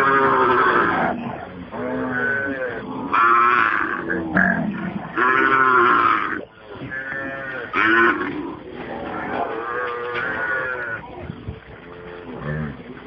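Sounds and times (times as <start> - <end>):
cattle lowing: 0.0 - 13.0.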